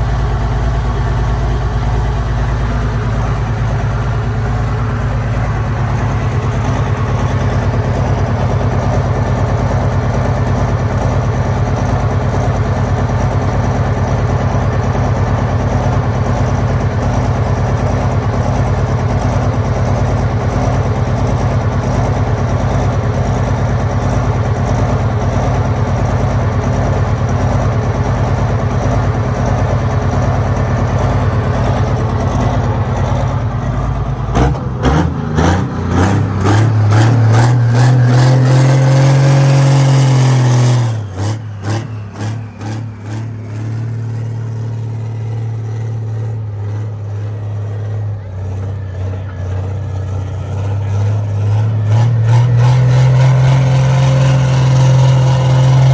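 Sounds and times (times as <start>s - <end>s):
diesel engine idling loudly: 0.0s - 55.9s
engine revving: 30.8s - 55.9s.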